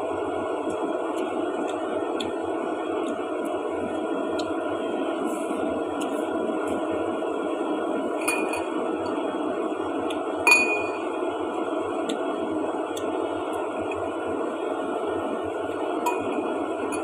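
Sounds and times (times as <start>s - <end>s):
utensils clinking on ceramic bowl: 8.2s - 8.7s, 10.5s - 11.1s, 16.1s - 17.0s.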